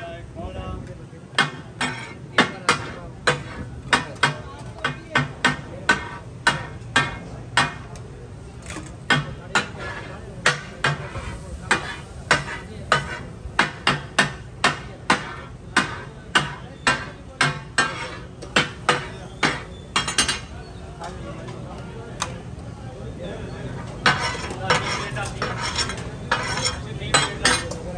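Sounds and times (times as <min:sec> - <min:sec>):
steady background noise: 0:00.0 - 0:27.9
metal spatulas striking griddle: 0:01.3 - 0:08.0, 0:08.8 - 0:20.5, 0:24.0 - 0:27.8.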